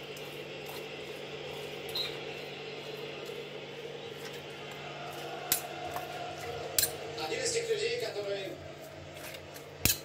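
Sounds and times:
kitchen room hum: 0:00.0 - 0:10.0.

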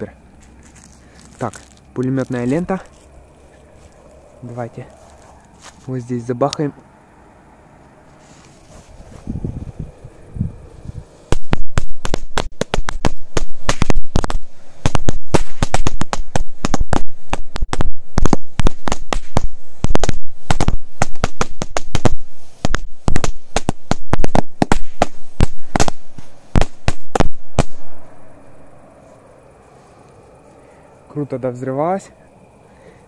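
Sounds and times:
string of firecrackers banging: 0:11.3 - 0:28.1.

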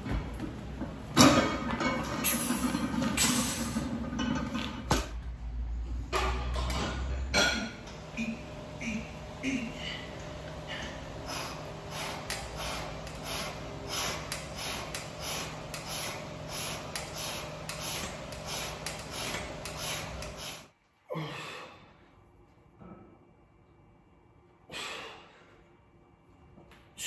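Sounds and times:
man breathing hard: 0:09.4 - 0:22.0, 0:24.7 - 0:25.6.

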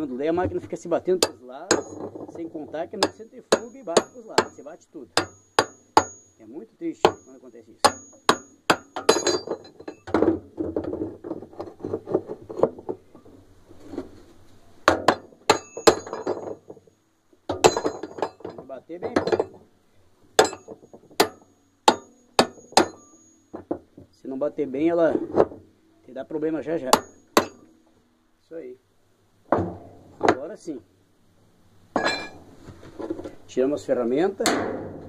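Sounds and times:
hammer striking metal nut: 0:01.2 - 0:02.2, 0:03.0 - 0:06.4, 0:07.0 - 0:10.3, 0:14.9 - 0:16.7, 0:17.5 - 0:19.6, 0:20.4 - 0:23.8, 0:26.9 - 0:27.7.

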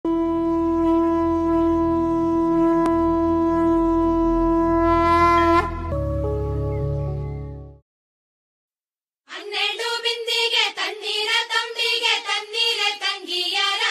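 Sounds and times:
conch shell blown: 0:00.0 - 0:06.6
music with low drone: 0:00.1 - 0:07.8.

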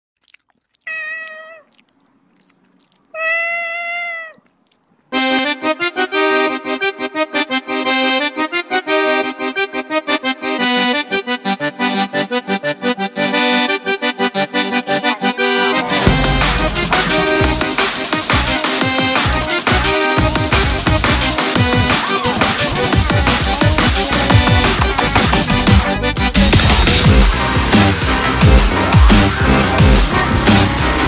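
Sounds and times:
cat meowing: 0:00.8 - 0:01.9, 0:02.8 - 0:04.8
lively music with pulsing beat: 0:14.0 - 0:31.0.

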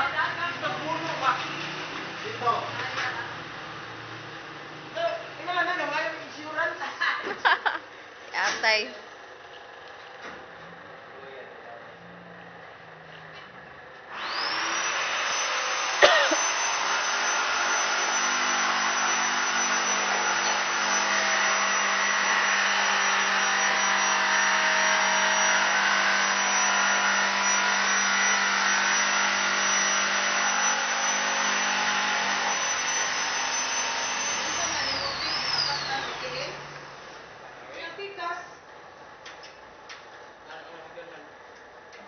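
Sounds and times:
motor-driven machine running: 0:14.1 - 0:37.8.

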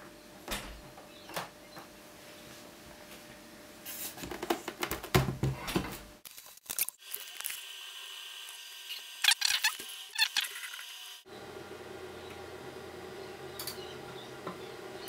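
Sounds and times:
hard drives humming and whining: 0:00.0 - 0:03.8, 0:10.0 - 0:15.0.

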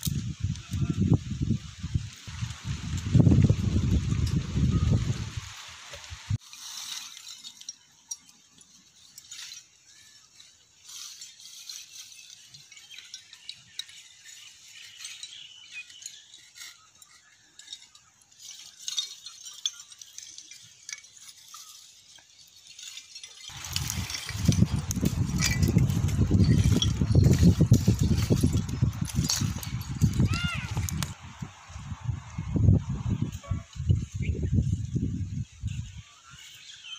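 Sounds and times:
twig fire crackling: 0:00.0 - 0:34.0
charcoal pieces clinking: 0:06.5 - 0:31.2.

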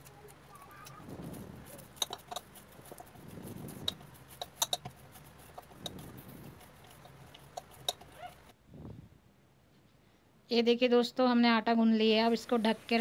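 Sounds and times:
dough being kneaded by hand: 0:00.0 - 0:08.6
clicks and taps on metal bowl: 0:01.8 - 0:03.1, 0:03.8 - 0:06.0, 0:06.7 - 0:08.1.

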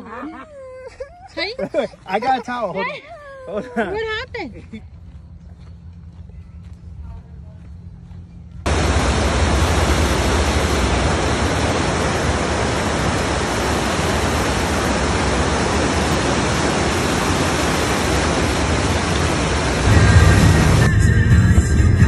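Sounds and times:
river rushing over boulders: 0:08.7 - 0:20.9.

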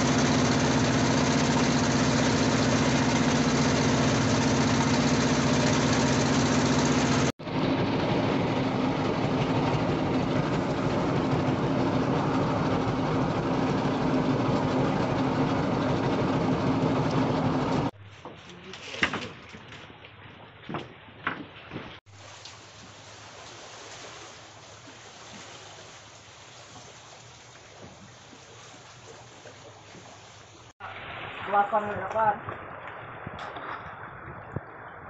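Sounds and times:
boat engine humming: 0:00.0 - 0:18.0.

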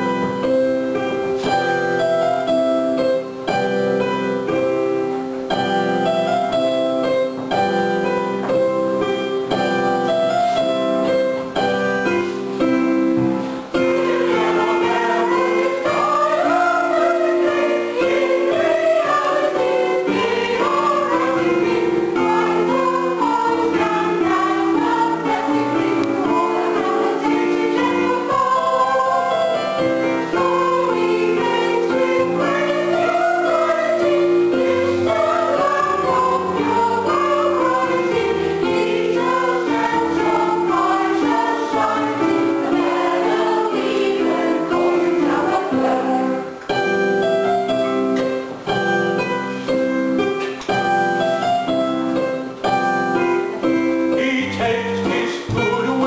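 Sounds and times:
electronic keyboard: 0:00.0 - 0:56.0
chorus of women singing: 0:13.7 - 0:46.7.

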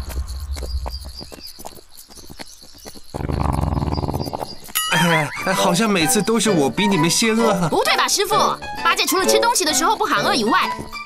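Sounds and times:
footsteps on dirt path: 0:00.0 - 0:05.2, 0:09.7 - 0:11.0
hoof clops on dirt: 0:00.0 - 0:05.2
insects chirring: 0:00.0 - 0:06.4.

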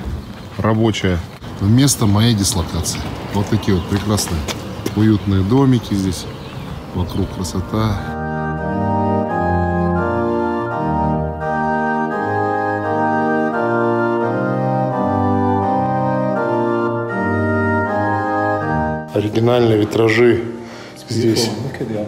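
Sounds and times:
organ playing sustained chords: 0:05.0 - 0:22.0.

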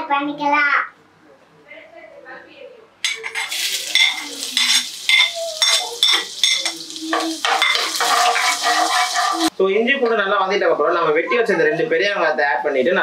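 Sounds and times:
spoon scraping and clinking plate: 0:03.1 - 0:06.8, 0:07.4 - 0:09.5
ginger and garlic sizzling in oil: 0:03.1 - 0:09.5.

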